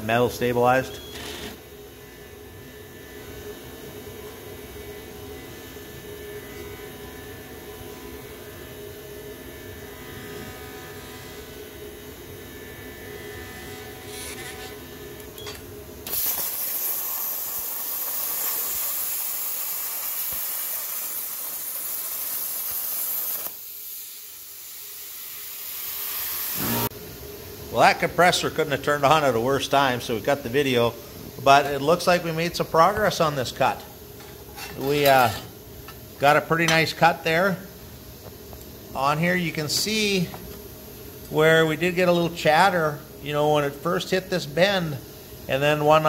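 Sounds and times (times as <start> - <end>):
mechanical hum with steady tones: 0.0 - 46.0
plasma cutter hissing: 16.0 - 26.9.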